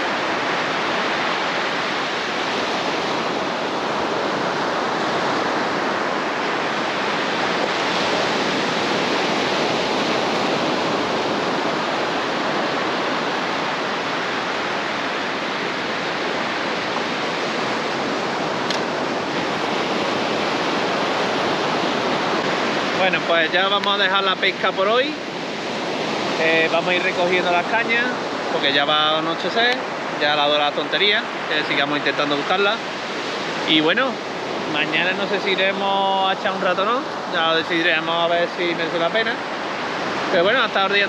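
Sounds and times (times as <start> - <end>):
sea surf breaking waves: 0.0 - 41.0.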